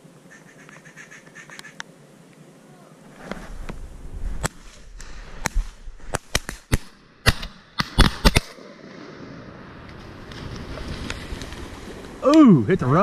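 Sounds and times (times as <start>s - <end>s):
shotgun shots: 5.5s - 9.5s.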